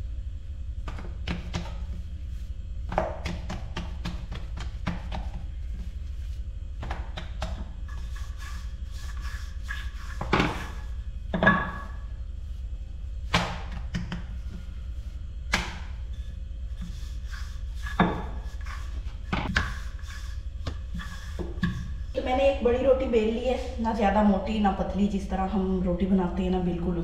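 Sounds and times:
low hum: 0:00.0 - 0:27.0
rolling pin knocking and rolling: 0:02.9 - 0:05.8, 0:06.8 - 0:08.2, 0:17.8 - 0:19.9.

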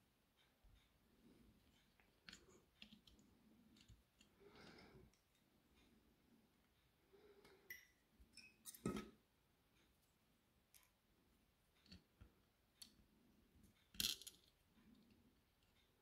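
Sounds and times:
small parts clicking and tapping: 0:01.6 - 0:05.5, 0:10.7 - 0:11.0, 0:11.7 - 0:16.0.

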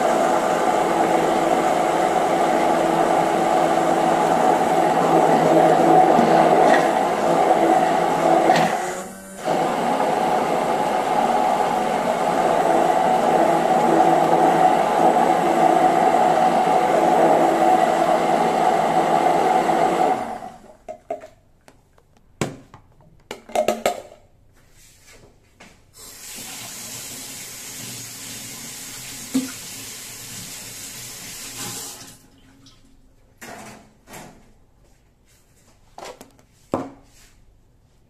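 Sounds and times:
electric blender motor running: 0:00.0 - 0:20.6
tap running water: 0:26.0 - 0:32.9.

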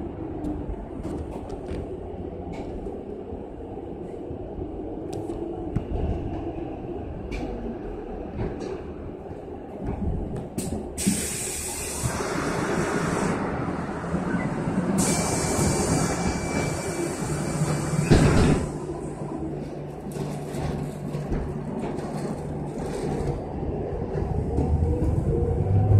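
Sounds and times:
hiss: 0:11.0 - 0:13.4, 0:15.0 - 0:18.4.

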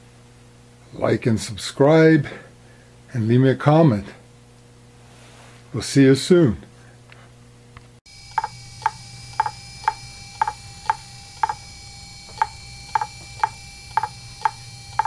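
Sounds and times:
faint low hum: 0:05.7 - 0:15.0
hard drive whine: 0:08.1 - 0:15.0
hard drive clicking: 0:08.2 - 0:15.0.

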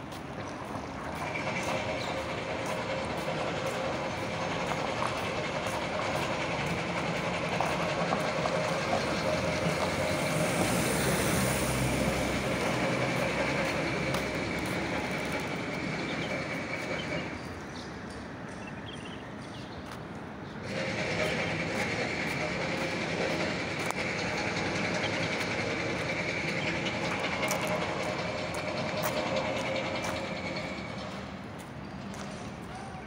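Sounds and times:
outdoor street noise: 0:00.0 - 0:33.0.

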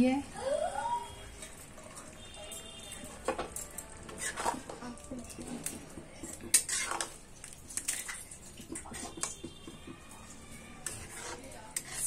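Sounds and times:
wet squelching of stirred gravy: 0:01.2 - 0:12.0
metal spatula scraping pan: 0:04.0 - 0:09.5, 0:10.2 - 0:12.0.

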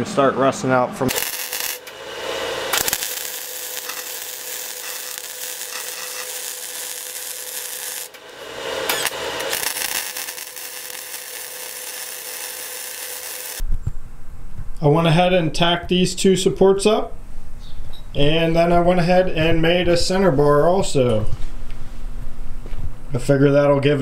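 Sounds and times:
welder hum: 0:01.0 - 0:13.6
welding arc crackling hiss: 0:01.1 - 0:13.6.

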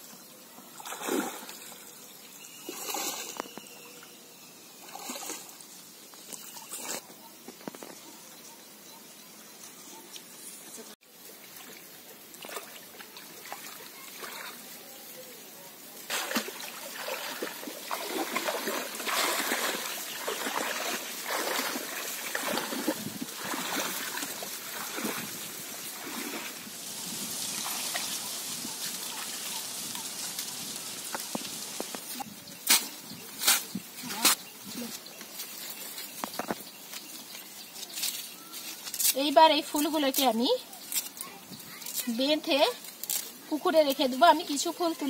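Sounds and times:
water splashing from wading: 0:00.8 - 0:01.8, 0:11.5 - 0:14.7, 0:16.1 - 0:29.6.

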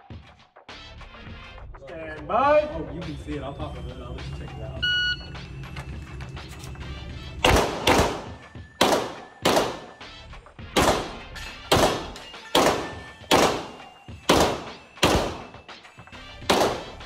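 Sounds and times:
handgun shots echoing indoors: 0:07.4 - 0:10.0, 0:10.8 - 0:15.6, 0:16.4 - 0:17.0.

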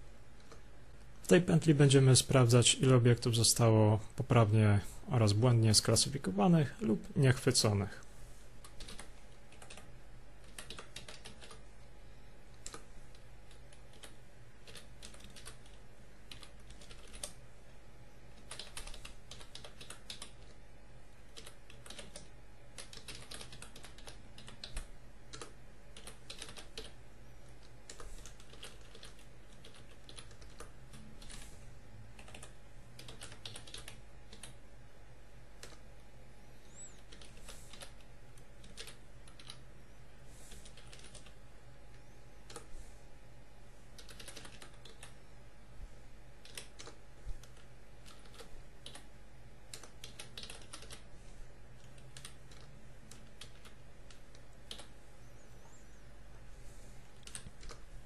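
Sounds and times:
keyboard typing: 0:08.6 - 0:11.7, 0:12.5 - 0:17.4, 0:18.3 - 0:20.6, 0:21.3 - 0:27.0, 0:27.6 - 0:31.5, 0:32.1 - 0:34.6, 0:35.6 - 0:35.9, 0:36.7 - 0:39.6, 0:40.5 - 0:41.4, 0:42.4 - 0:42.7, 0:44.0 - 0:45.2, 0:46.4 - 0:49.1, 0:49.7 - 0:51.1, 0:51.8 - 0:54.9, 0:57.1 - 0:57.9.

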